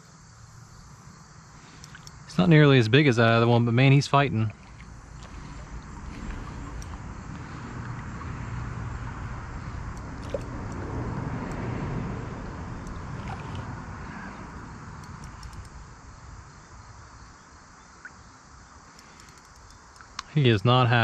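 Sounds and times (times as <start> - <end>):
low rumble: 3.6 - 16.8
fish thrashing and water splashing: 4.5 - 11.0, 12.8 - 13.8.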